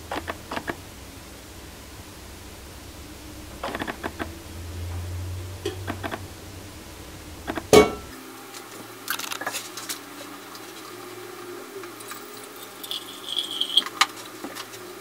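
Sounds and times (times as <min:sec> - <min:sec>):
loud metal clang: 0:07.7 - 0:08.1
water pouring: 0:12.0 - 0:14.4.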